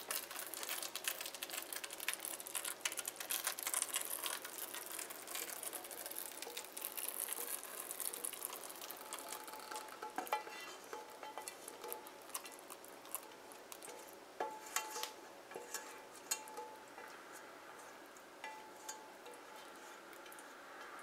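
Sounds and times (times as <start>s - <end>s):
pan clinking against metal rim: 13.8s - 16.9s.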